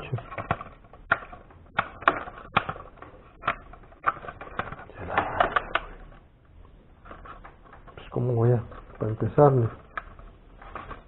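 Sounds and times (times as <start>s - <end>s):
plastic parts clicking: 0.0s - 6.2s.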